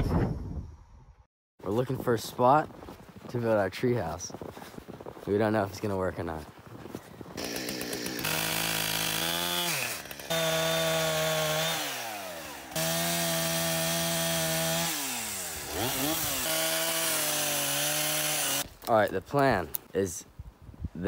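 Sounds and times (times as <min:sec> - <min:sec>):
chainsaw cutting wood: 0:07.3 - 0:18.9.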